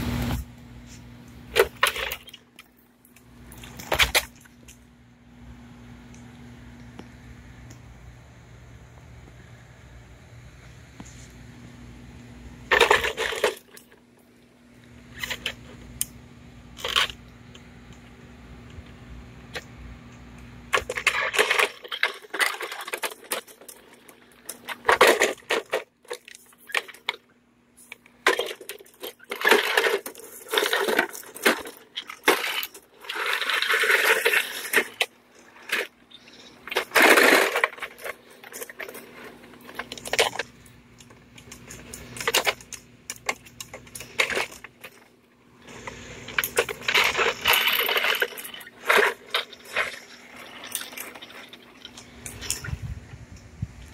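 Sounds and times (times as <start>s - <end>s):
hands handling plastic pool cleaner: 0.2s - 4.8s, 27.8s - 52.7s.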